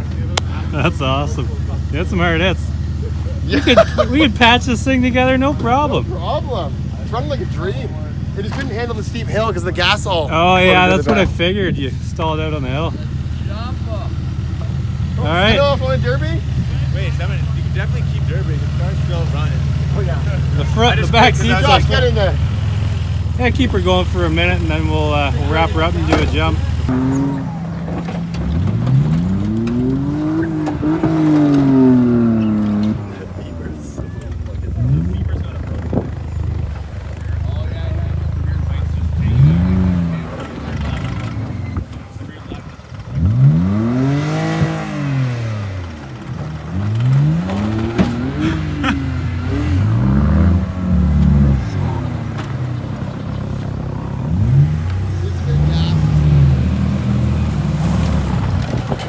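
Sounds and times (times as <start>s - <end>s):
car engine revving: 0.0s - 59.0s
car engine running steadily: 0.0s - 59.0s
car bodies knocking: 45.8s - 48.4s.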